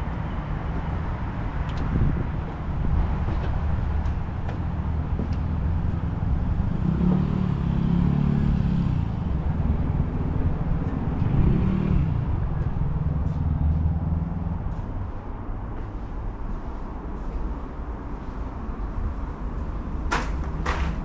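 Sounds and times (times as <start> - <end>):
vehicles passing: 0.0 - 21.0
engine note rising and falling: 5.2 - 14.8.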